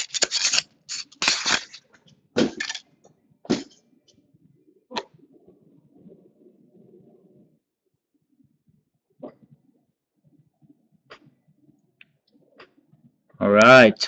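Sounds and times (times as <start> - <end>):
card stock scraping and rustling: 0.0 - 1.8, 2.4 - 2.8.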